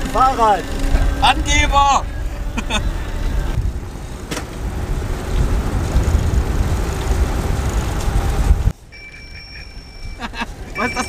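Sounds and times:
wind and road noise: 0.0s - 11.0s
electronic bicycle bell ringing: 8.9s - 11.0s.

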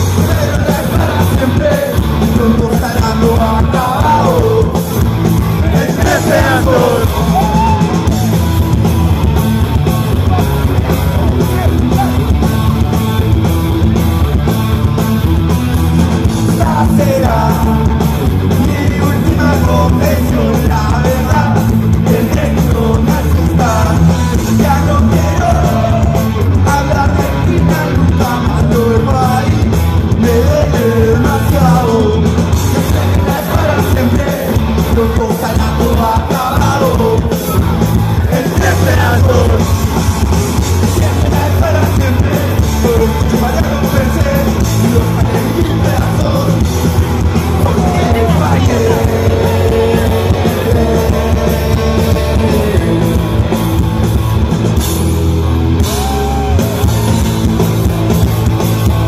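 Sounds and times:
punk rock band playing live: 0.0s - 59.0s
person singing: 5.6s - 8.2s, 16.5s - 39.8s, 47.4s - 53.4s.

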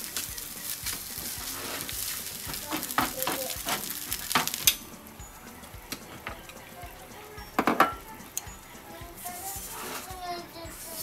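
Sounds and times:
light background music: 0.0s - 11.0s
utensil clacking against a pan: 0.0s - 11.0s.

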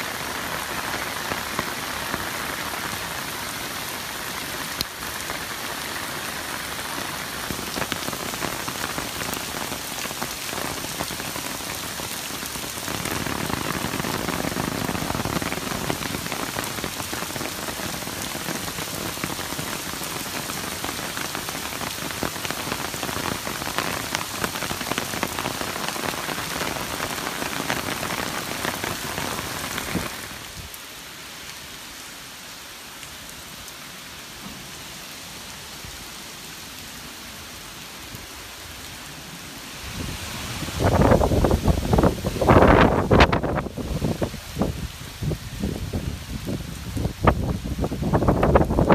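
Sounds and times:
heavy rain on paved street: 0.0s - 48.9s.

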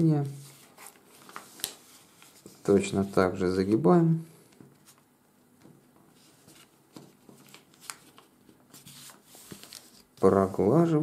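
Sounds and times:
paper rustling and crinkling: 0.2s - 3.0s, 6.1s - 10.8s.

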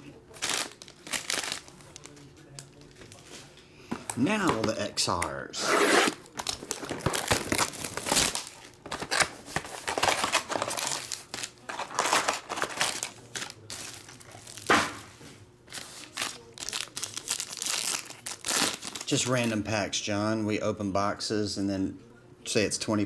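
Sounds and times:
plastic wrapping tearing and crinkling: 0.3s - 3.2s, 5.8s - 15.0s, 15.7s - 19.6s.

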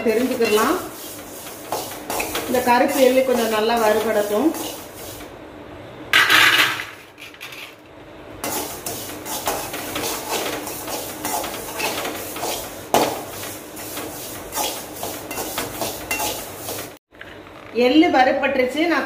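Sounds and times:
metal spatula scraping a pan: 0.0s - 5.2s, 8.4s - 17.0s.

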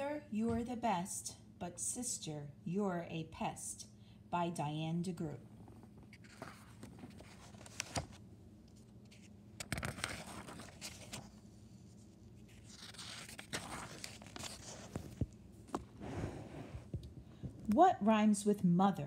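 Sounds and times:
book pages rustling: 6.0s - 17.2s.

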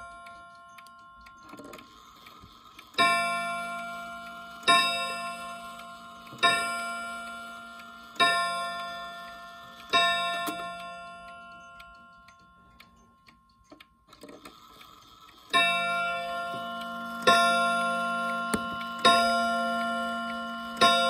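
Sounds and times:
clock striking: 0.0s - 21.0s
clock ticking: 0.0s - 21.0s.

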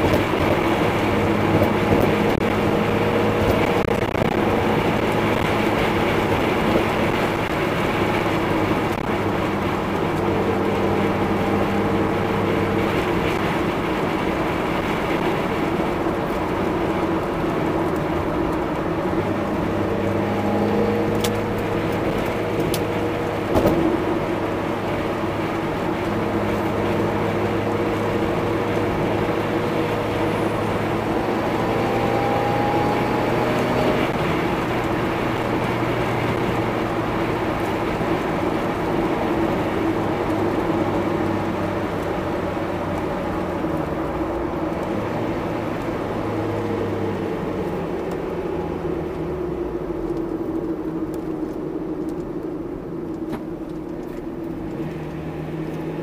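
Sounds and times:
car engine cruising: 0.0s - 56.0s
road and tyre noise: 0.0s - 56.0s
short thump: 23.5s - 24.0s.

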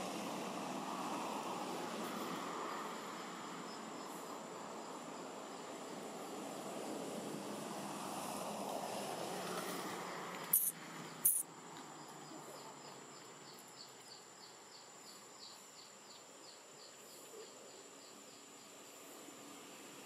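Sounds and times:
sharp click: 10.5s - 11.4s
short high insect chirps: 10.5s - 11.5s
insects whining: 10.5s - 20.0s.

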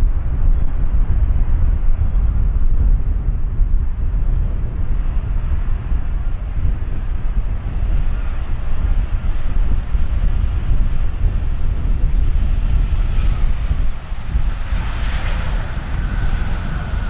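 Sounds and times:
jet engine rumble: 0.0s - 17.0s
wind buffeting microphone: 0.0s - 17.0s.

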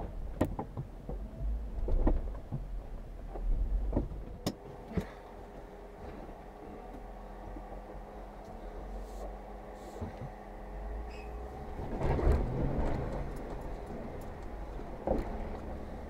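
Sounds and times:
low engine drone: 0.0s - 16.0s.

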